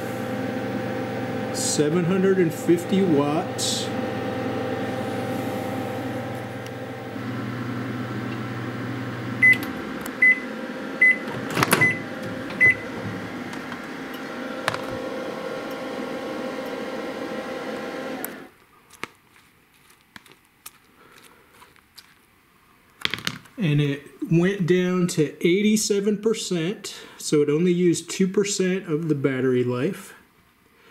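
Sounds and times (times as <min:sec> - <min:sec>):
microwave oven humming: 0:00.0 - 0:18.5.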